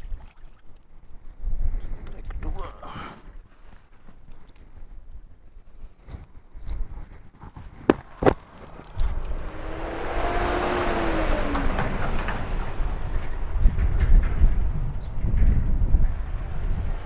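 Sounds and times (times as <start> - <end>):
motor vehicle passing: 8.0 - 17.0.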